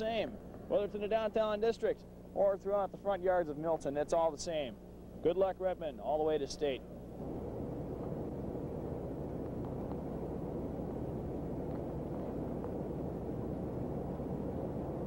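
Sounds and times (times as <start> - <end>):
faint clicks: 9.3 - 12.9.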